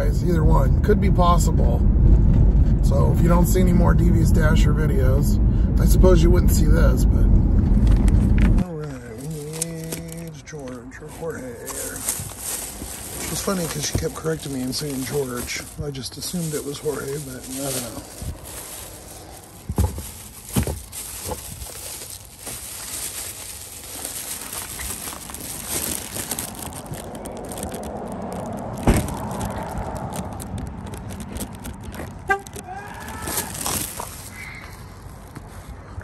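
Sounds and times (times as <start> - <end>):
handling noise while walking: 7.9 - 36.0
plastic bag handled: 8.6 - 10.4, 11.0 - 35.4.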